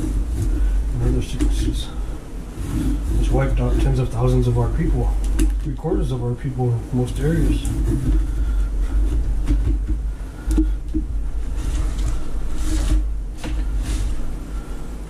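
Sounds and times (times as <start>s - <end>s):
steady low rumble: 0.0s - 15.0s
knife scrape: 2.6s - 4.1s, 11.5s - 14.9s.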